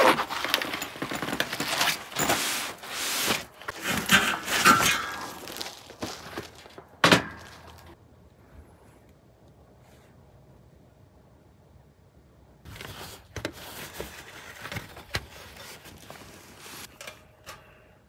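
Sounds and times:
fabric bag rustling and scraping: 0.0s - 6.8s.

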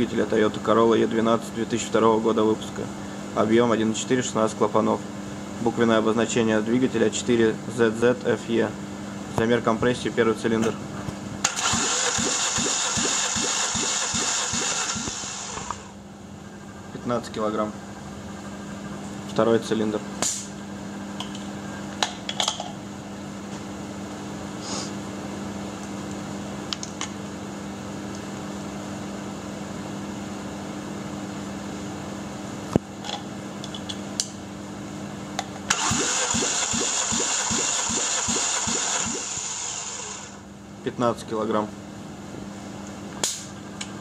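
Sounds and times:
steady low hum: 0.0s - 44.0s
starter motor cranking engine: 11.4s - 16.0s, 35.7s - 40.4s.

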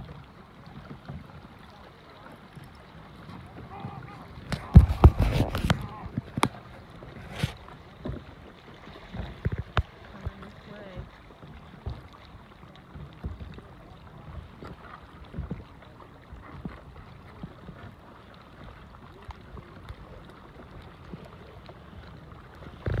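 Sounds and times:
water splashing around kayak: 0.0s - 23.0s.

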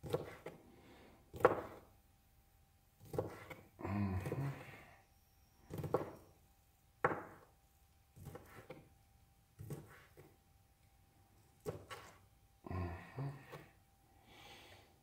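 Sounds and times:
knife chopping on cutting board: 0.0s - 0.6s, 1.3s - 1.9s, 3.0s - 3.6s, 5.7s - 6.2s, 7.0s - 7.5s, 8.2s - 8.8s, 9.6s - 10.3s, 11.6s - 12.2s.

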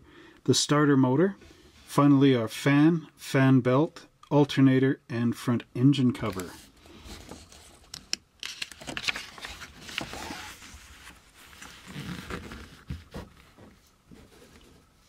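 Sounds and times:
paper rustling and crinkling: 6.2s - 14.9s.

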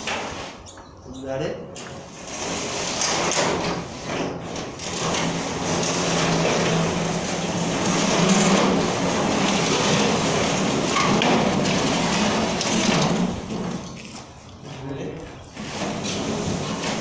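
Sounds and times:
garage door clattering: 0.0s - 0.8s, 1.7s - 17.0s.

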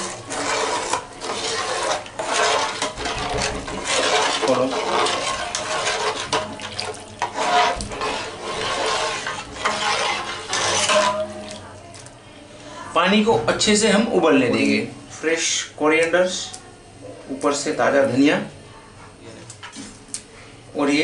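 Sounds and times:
water swishing and sloshing: 0.0s - 12.2s.

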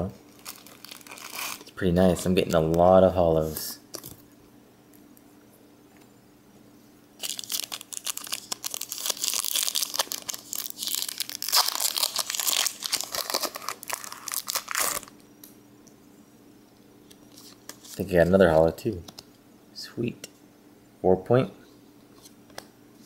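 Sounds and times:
foil pack crinkling and tearing: 0.3s - 1.8s, 7.2s - 15.2s.

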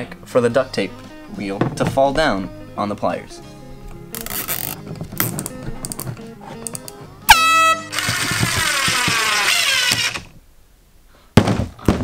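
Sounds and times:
air horn blast: 7.3s - 8.0s.

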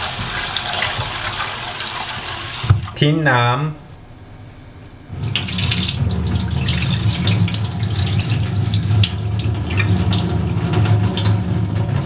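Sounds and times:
water pouring into metal sink: 0.0s - 2.7s, 5.2s - 12.0s.

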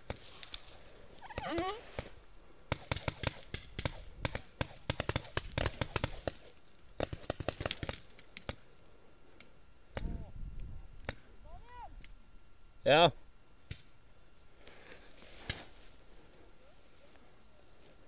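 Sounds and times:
paintball markers firing: 2.7s - 8.6s.

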